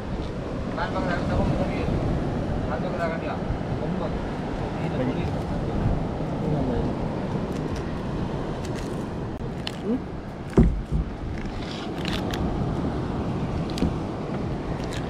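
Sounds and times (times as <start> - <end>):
low background rumble: 5.7 - 15.0
thump: 10.5 - 11.2
net rustling and scraping: 10.5 - 12.4.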